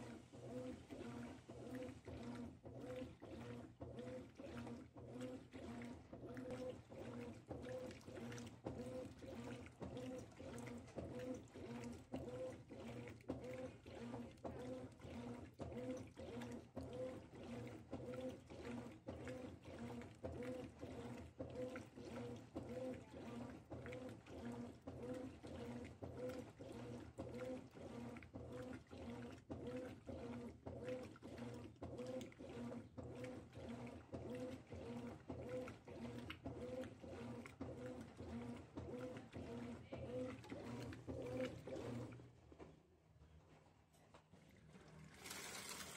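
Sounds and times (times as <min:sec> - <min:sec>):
churning water swishing: 0:00.0 - 0:42.2
washing machine motor humming: 0:00.0 - 0:42.6, 0:44.4 - 0:45.9.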